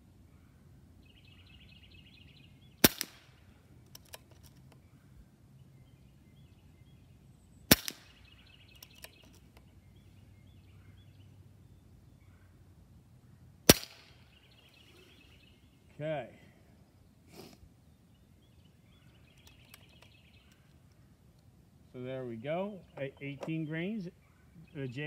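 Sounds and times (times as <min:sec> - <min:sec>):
air rifle shots: 0:02.8 - 0:03.4, 0:07.7 - 0:08.2, 0:13.7 - 0:14.2.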